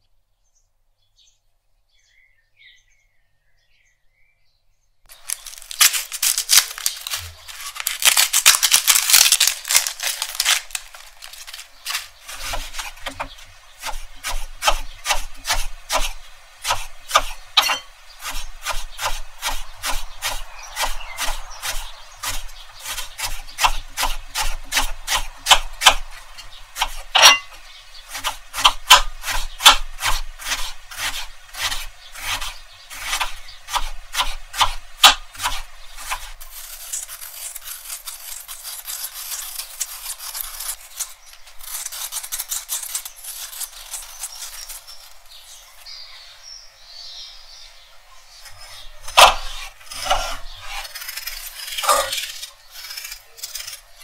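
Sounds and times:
peeler scraping potato: 0:05.1 - 0:45.9, 0:48.4 - 0:54.0
knife chopping on wooden board: 0:10.2 - 0:26.2, 0:26.8 - 0:36.4, 0:49.0 - 0:50.9.

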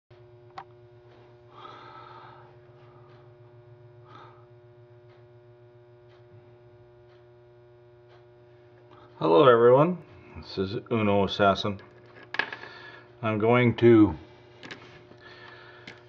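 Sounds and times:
faint electrical hum: 0:00.1 - 0:16.0
soft breathing: 0:01.5 - 0:03.4, 0:12.6 - 0:13.1, 0:15.0 - 0:16.0.

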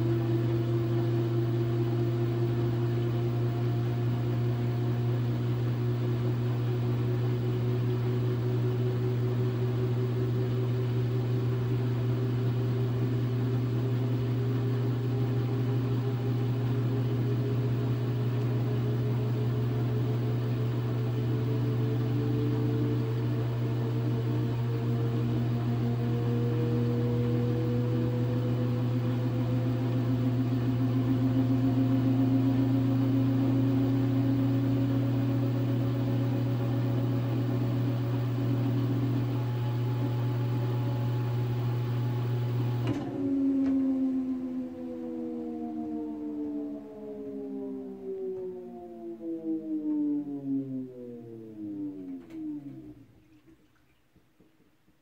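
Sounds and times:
washing machine drum spinning: 0:00.0 - 0:44.0.

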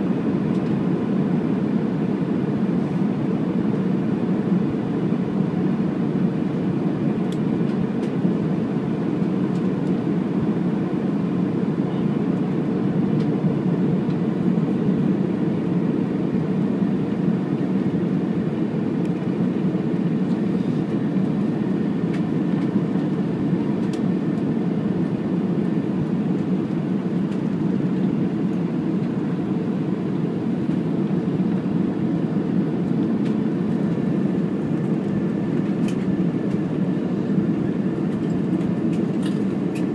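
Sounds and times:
airplane cabin roar: 0:00.0 - 0:39.9.

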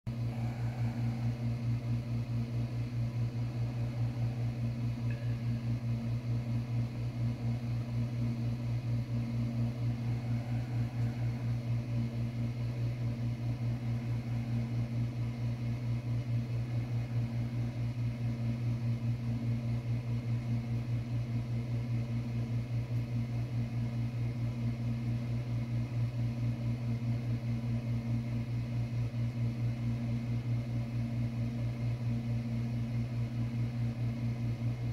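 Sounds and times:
throbbing machine hum: 0:00.1 - 0:19.2.

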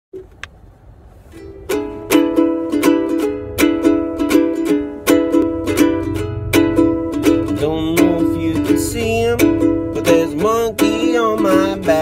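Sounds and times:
ukulele strumming: 0:01.2 - 0:12.0
person singing: 0:07.3 - 0:12.0.

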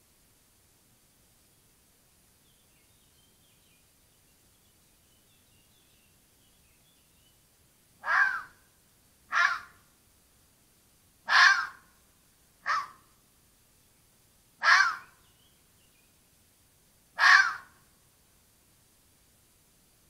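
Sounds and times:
fox calling: 0:08.0 - 0:08.6, 0:09.3 - 0:09.8, 0:11.3 - 0:11.9, 0:12.6 - 0:13.1, 0:14.6 - 0:15.2, 0:17.2 - 0:17.8.

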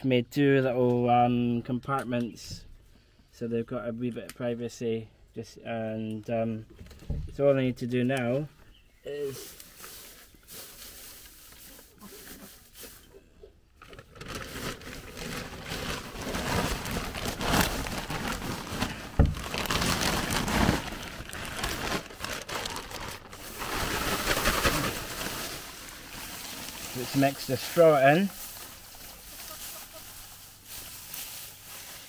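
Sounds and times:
plastic bag rustling: 0:09.2 - 0:13.1, 0:13.8 - 0:32.0.

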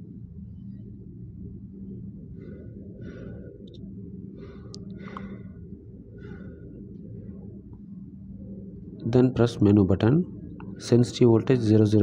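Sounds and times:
low hum: 0:00.0 - 0:12.0
soft breath-like puffs: 0:02.1 - 0:07.7.

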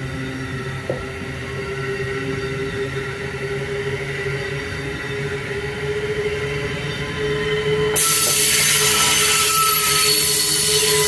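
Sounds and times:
train rolling rumble: 0:00.0 - 0:11.0
train whine: 0:00.0 - 0:11.0.

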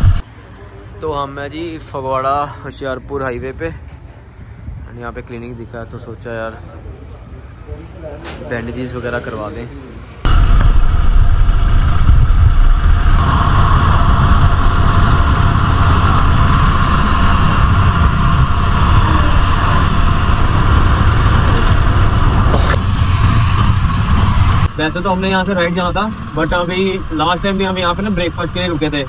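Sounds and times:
wind noise on microphone: 0:00.0 - 0:00.2, 0:03.4 - 0:05.4, 0:10.2 - 0:28.9
motorcycle engine running: 0:10.3 - 0:28.1.

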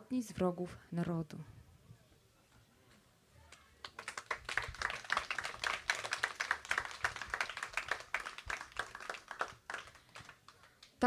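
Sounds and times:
audience applauding: 0:03.8 - 0:10.9.

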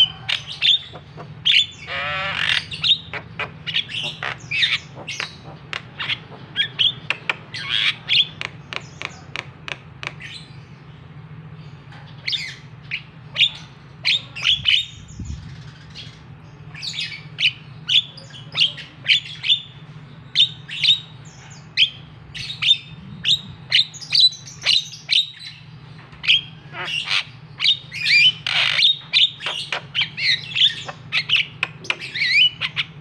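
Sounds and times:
myna calling: 0:00.0 - 0:10.4, 0:26.2 - 0:33.0.

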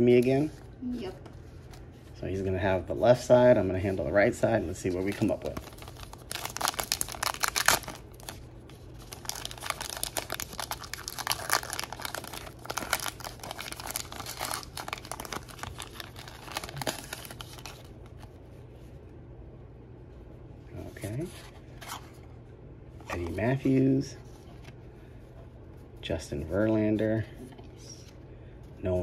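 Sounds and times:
foil wrapper crinkling and tearing: 0:05.0 - 0:18.2.

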